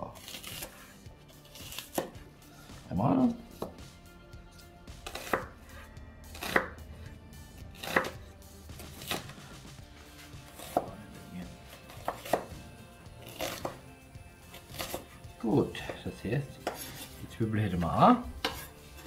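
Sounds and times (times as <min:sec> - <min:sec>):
knife chopping on wooden board: 0:00.2 - 0:00.9, 0:01.5 - 0:02.2, 0:03.5 - 0:03.9, 0:04.5 - 0:06.8, 0:07.7 - 0:09.3, 0:10.1 - 0:11.0, 0:11.6 - 0:12.6, 0:13.2 - 0:13.8, 0:14.5 - 0:17.2, 0:18.3 - 0:19.0.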